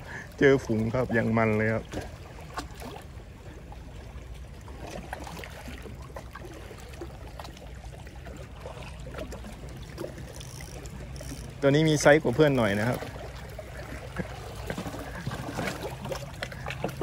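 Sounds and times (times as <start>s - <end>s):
faint splashes: 0.0s - 17.0s
seawater lapping and trickling: 0.0s - 17.0s.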